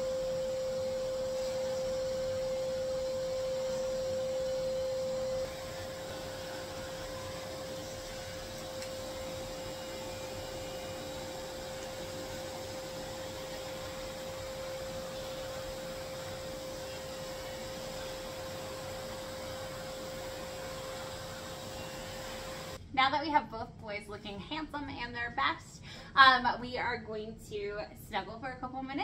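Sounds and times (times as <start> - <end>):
grooming vacuum and clipper whine: 0.0 - 22.8.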